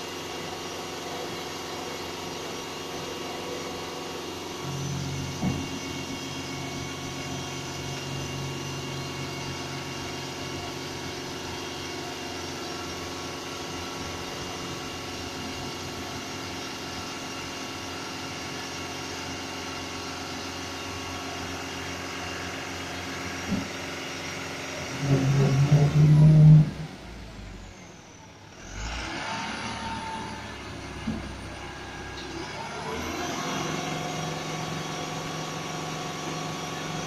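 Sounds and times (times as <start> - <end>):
truck engine and hydraulics running: 0.0 - 37.0
humming tone: 24.9 - 27.5.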